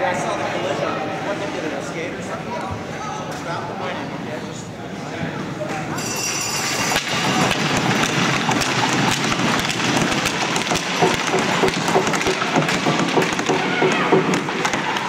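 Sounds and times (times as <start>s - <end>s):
hubbub of many voices: 0.0s - 15.0s
sharp clacks and knocks on ice: 6.9s - 15.0s.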